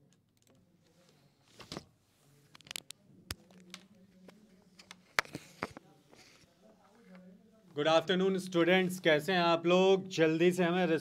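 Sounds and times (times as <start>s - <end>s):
soft clicks and taps: 2.5s - 6.2s.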